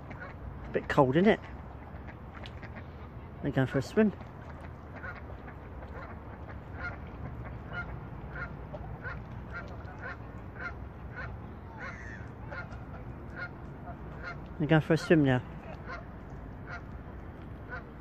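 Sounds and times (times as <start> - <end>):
geese honking: 4.6 - 17.0, 17.6 - 18.0.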